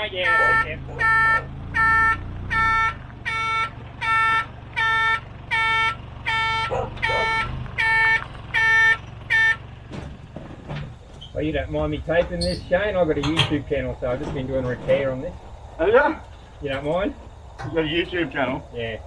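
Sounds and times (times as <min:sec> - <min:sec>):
truck reversing beeper: 0:00.0 - 0:11.6
truck engine running: 0:00.0 - 0:19.0.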